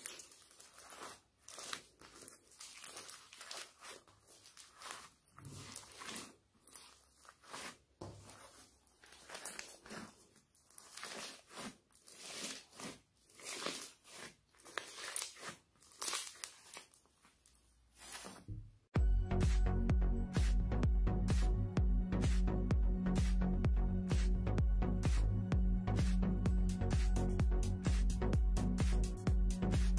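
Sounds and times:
slime squishing and crackling: 0.0s - 18.3s.

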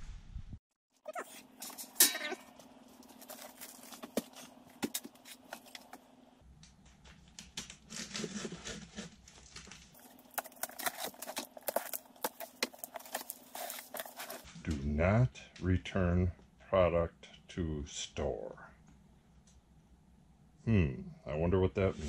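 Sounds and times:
cardboard scraping and crinkling: 1.1s - 6.0s, 7.8s - 14.6s
tape tearing: 1.1s - 6.0s, 7.6s - 14.5s.

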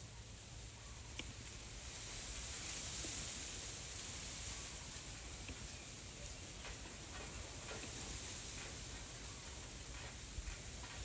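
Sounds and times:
background hiss: 0.0s - 11.0s
faint ticks: 5.4s - 5.7s, 6.6s - 11.0s.

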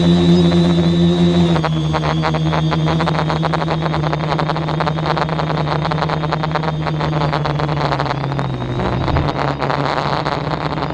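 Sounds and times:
small aircraft motor running: 0.0s - 10.9s
wind buffeting microphone: 8.5s - 9.6s.

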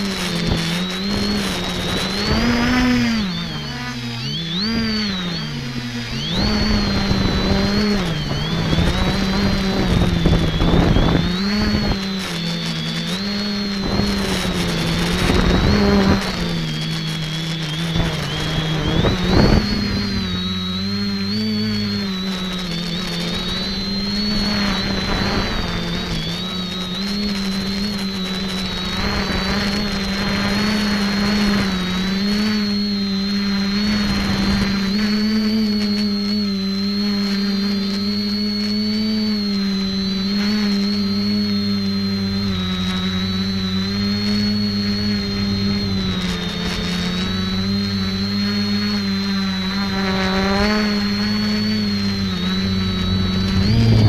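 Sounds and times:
drone motors and propellers humming: 0.0s - 54.0s
rushing bursts: 51.0s - 54.0s.

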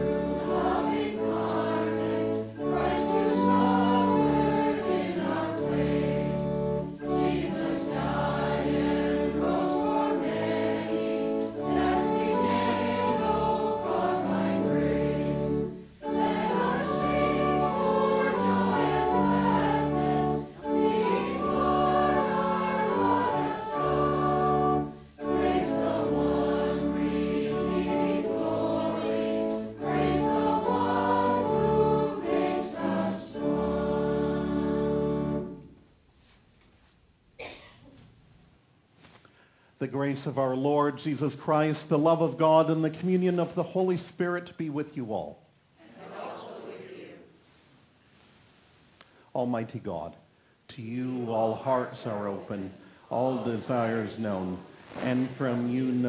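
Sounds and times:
congregation and choir singing a hymn: 0.0s - 35.8s, 45.9s - 47.6s, 50.9s - 56.0s.

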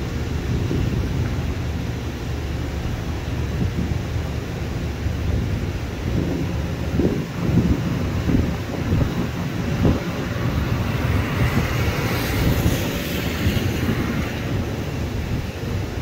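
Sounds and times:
distant jet engines rumbling: 0.0s - 16.0s
wind buffeting microphone: 0.0s - 16.0s
hiss: 9.1s - 15.1s.

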